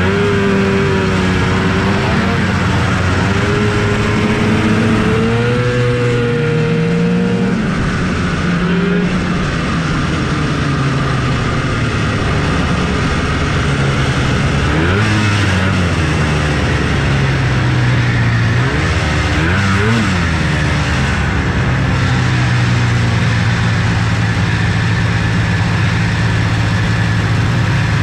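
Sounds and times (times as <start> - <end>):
snowmobile engines idling and revving: 0.0 - 28.0.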